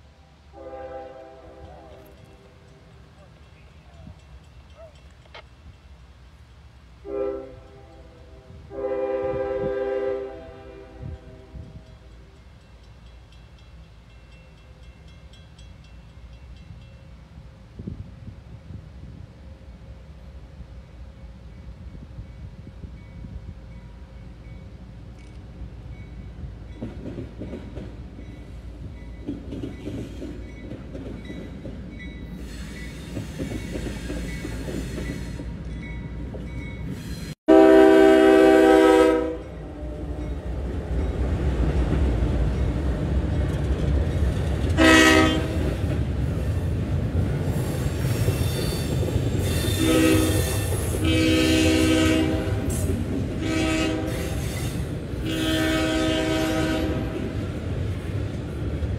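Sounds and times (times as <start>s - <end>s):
train rumbling past: 0.0s - 58.9s
locomotive horn blast: 0.5s - 2.4s, 7.0s - 12.1s, 37.5s - 40.4s, 44.8s - 46.0s, 49.6s - 57.4s.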